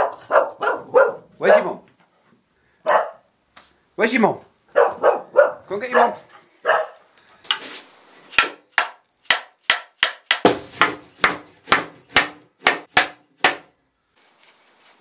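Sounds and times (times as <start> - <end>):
mallet knocking wood: 8.4 - 13.7.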